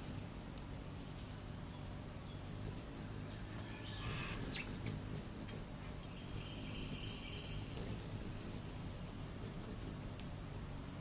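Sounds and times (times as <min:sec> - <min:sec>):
low background hum: 0:00.0 - 0:11.0
songbird calling: 0:03.2 - 0:07.9.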